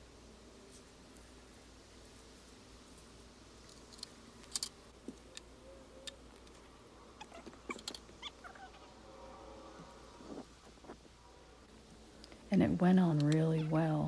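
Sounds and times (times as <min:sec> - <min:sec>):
faint squeaky chirps: 0:07.1 - 0:11.0.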